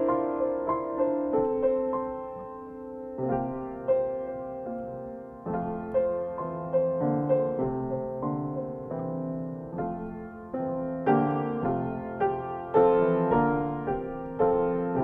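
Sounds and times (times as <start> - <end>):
slow solo piano: 0.0 - 15.0.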